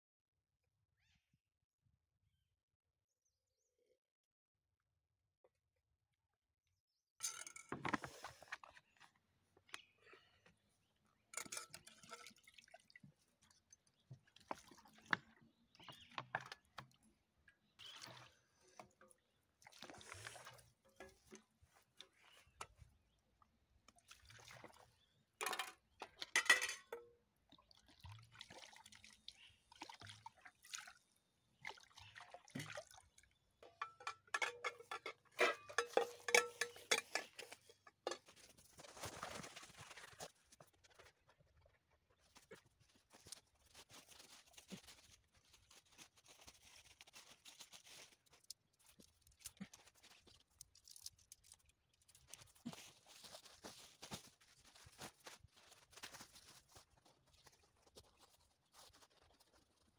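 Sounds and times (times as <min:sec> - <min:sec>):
metal pots clinking: 0:07.2 - 0:08.3, 0:11.3 - 0:12.5, 0:25.4 - 0:27.1, 0:33.6 - 0:38.5
water pouring and splashing: 0:11.4 - 0:15.4, 0:17.8 - 0:21.4, 0:23.9 - 0:33.2.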